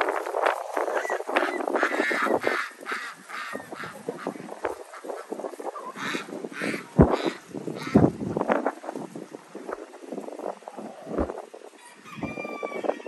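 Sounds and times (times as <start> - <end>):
wind buffeting microphone: 0.0 - 13.0
ducks quacking: 0.9 - 8.2.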